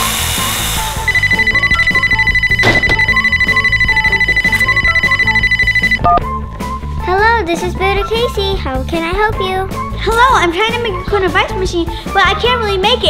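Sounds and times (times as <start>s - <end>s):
background music: 0.0s - 13.0s
telephone ringing: 1.0s - 6.2s.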